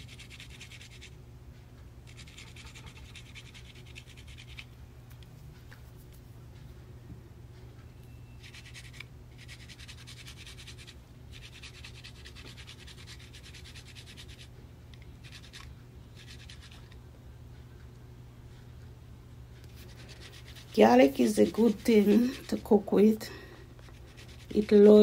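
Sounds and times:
steady low hum: 0.0s - 25.0s
garlic rasping on metal grater: 19.9s - 22.9s, 23.9s - 25.0s.

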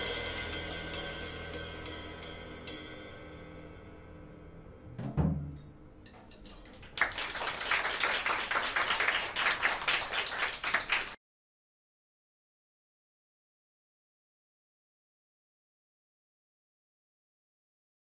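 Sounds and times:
low thump: 5.0s - 5.7s
audience applause: 7.0s - 11.2s.

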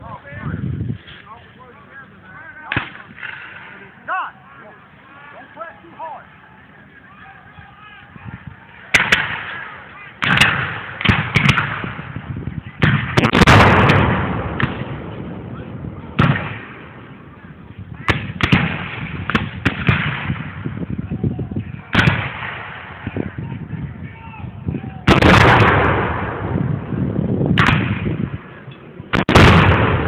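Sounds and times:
black-powder gunshots: 8.9s - 12.2s, 12.8s - 17.2s, 18.0s - 20.7s, 21.9s - 23.2s, 25.0s - 26.9s, 27.5s - 28.5s, 29.1s - 30.0s.

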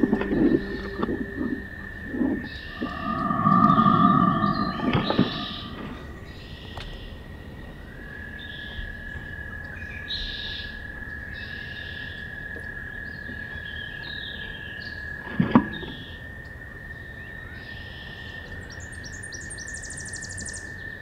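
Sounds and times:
steady high whine: 0.0s - 6.5s
birdsong: 0.0s - 12.3s, 17.0s - 21.0s.

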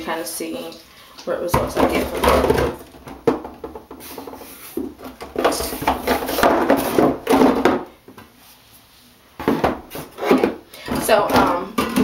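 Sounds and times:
bottles and jars clattering: 5.0s - 7.9s, 9.4s - 12.0s.

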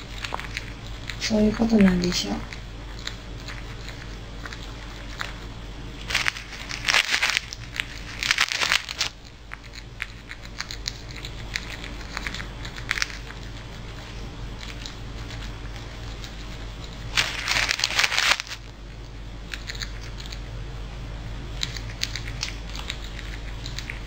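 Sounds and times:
plastic bag crinkling: 0.0s - 14.2s, 14.8s - 18.7s
squirrel gnawing bread: 0.0s - 24.0s.

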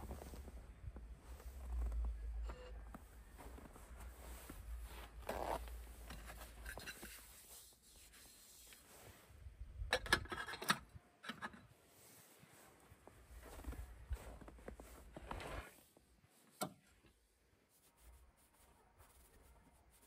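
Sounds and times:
handling rubbing and scraping: 0.0s - 9.3s.

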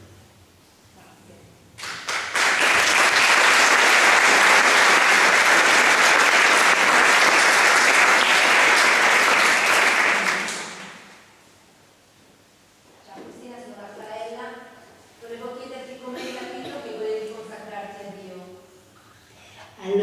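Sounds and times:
audience applauding: 1.8s - 11.3s.

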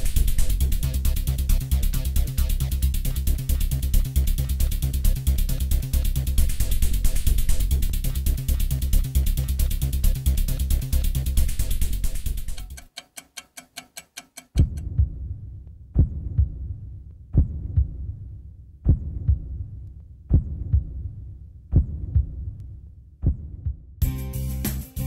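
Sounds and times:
music: 0.0s - 25.0s
quick ticks: 12.2s - 14.8s
heartbeat thumps: 14.6s - 18.2s, 18.8s - 22.6s, 23.2s - 24.0s.

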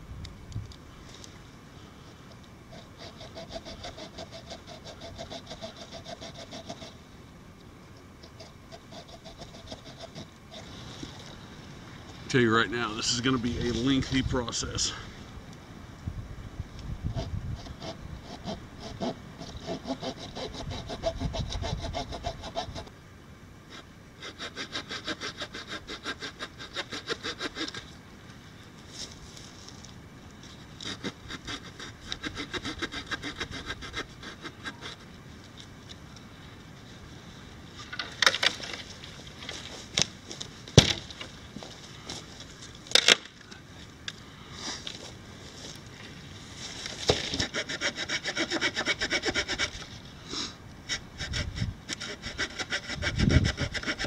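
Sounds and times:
saw cutting dry branch: 2.7s - 7.0s, 8.2s - 11.2s, 17.1s - 22.9s, 23.7s - 28.0s, 30.7s - 35.1s, 46.6s - 50.0s, 50.8s - 54.0s
wood cracking and knocking: 40.7s - 41.3s.

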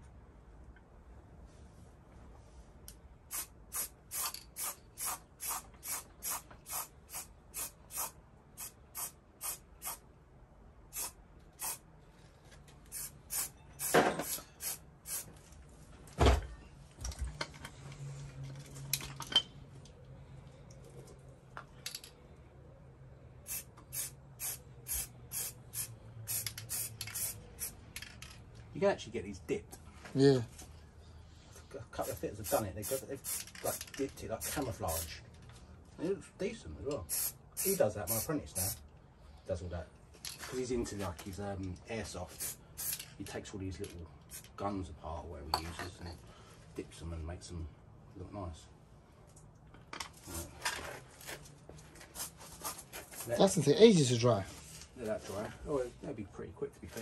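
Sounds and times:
spray paint can spurts: 3.3s - 10.0s, 10.9s - 11.8s, 12.9s - 15.3s, 23.5s - 28.2s, 32.0s - 35.2s, 37.1s - 38.8s, 42.4s - 43.2s.

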